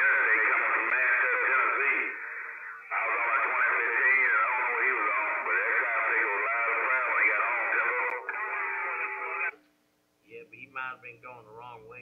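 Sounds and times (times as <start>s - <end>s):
garbled voices over radio: 0.0s - 9.6s.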